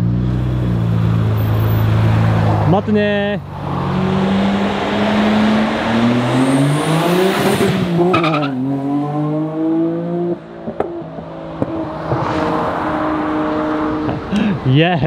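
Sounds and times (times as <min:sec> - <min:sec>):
car engine accelerating and revving: 0:00.0 - 0:14.6.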